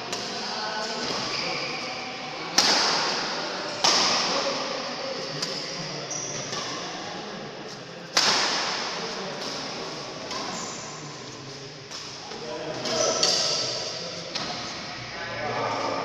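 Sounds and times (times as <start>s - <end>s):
rackets hitting shuttlecock: 2.5s - 4.4s, 8.1s - 10.5s, 12.8s - 14.6s.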